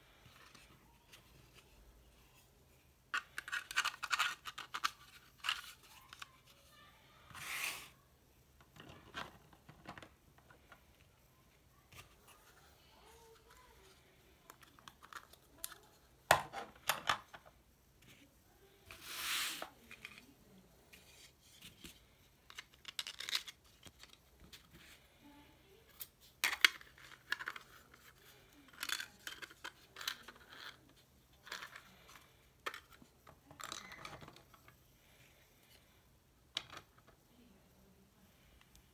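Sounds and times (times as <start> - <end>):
plastic parts clicking and knocking: 3.1 - 6.5, 8.6 - 11.1, 14.5 - 17.5, 21.8 - 24.8, 26.0 - 34.8, 36.5 - 37.2
plastic parts sliding scrapes: 7.3 - 8.0, 18.9 - 20.3.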